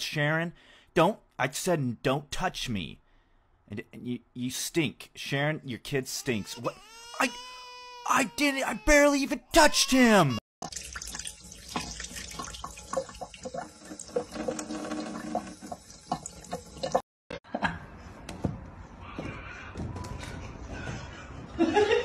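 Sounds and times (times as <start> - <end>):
small water splashes: 10.6 - 17.0
tap water running into sink: 10.6 - 17.0.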